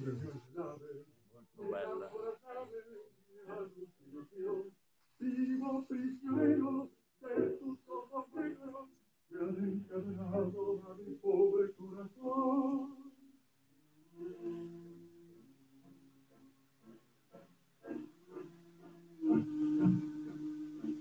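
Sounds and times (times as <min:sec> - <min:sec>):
man singing unaccompanied: 0:00.0 - 0:13.1.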